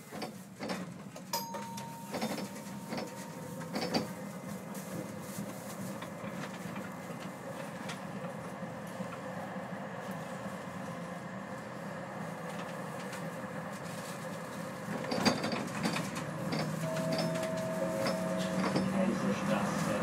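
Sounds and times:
tram motors and wheels running: 0.0s - 20.0s
steady tone: 16.8s - 19.4s.

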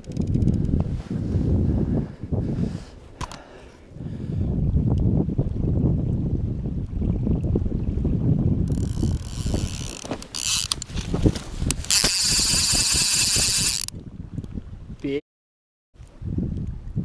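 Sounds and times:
fishing reel clicker ratcheting: 0.0s - 0.7s, 8.7s - 10.9s, 11.6s - 13.9s.

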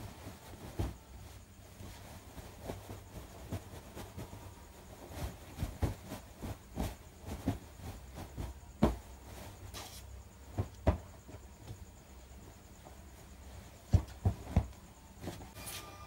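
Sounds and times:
fabric rustling: 0.0s - 16.0s
soft thumps and pats: 5.2s - 15.5s.

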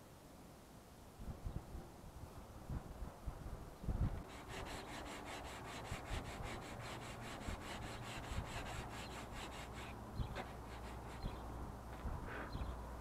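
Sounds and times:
sandpaper rubbing on filler: 4.2s - 11.4s.

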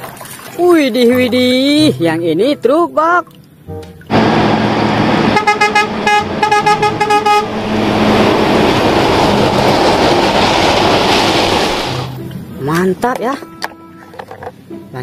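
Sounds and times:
truck horn blasts: 4.1s - 8.4s
truck engine and tyre noise: 4.1s - 13.0s.

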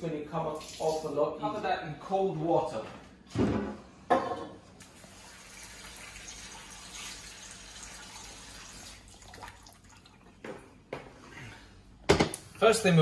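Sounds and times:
tap water filling a pot: 4.8s - 10.6s.

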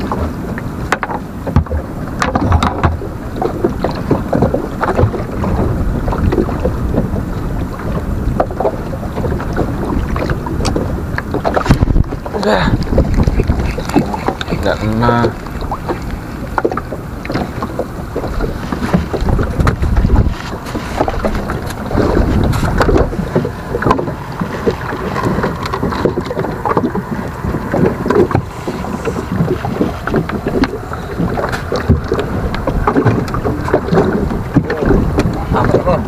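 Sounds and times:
water against boat hull: 0.0s - 36.0s
wind buffeting microphone: 0.0s - 36.0s
fishing gear knocking and rubbing: 11.4s - 36.0s.

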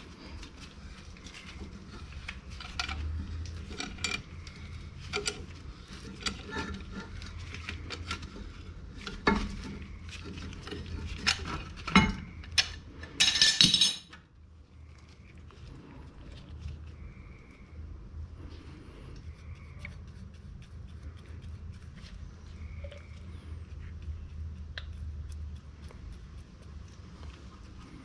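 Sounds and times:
metal tools clinking: 10.6s - 14.2s.

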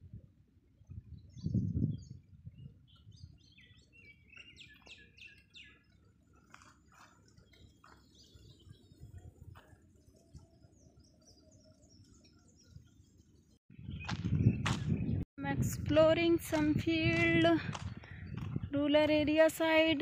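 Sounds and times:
birds chirping: 0.6s - 15.8s, 16.4s - 20.0s
low microphone rumble: 13.7s - 19.6s.

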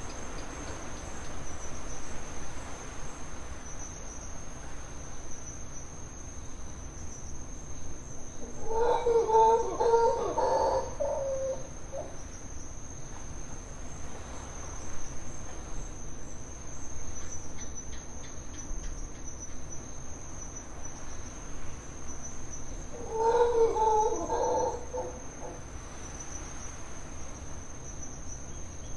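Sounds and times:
high-pitched cricket trill: 0.0s - 28.9s
low animal calls: 23.0s - 25.6s.

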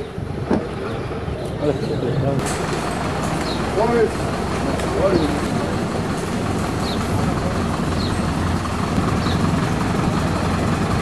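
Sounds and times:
vehicle engine idling: 2.4s - 11.0s.

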